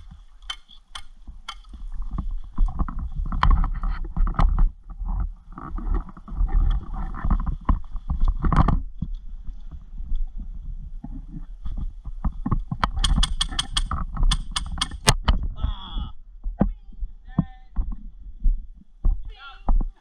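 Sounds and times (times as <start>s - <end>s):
sharp clicks and knocks: 0.0s - 1.8s, 12.2s - 15.4s
wind rumbling on microphone: 0.0s - 20.0s.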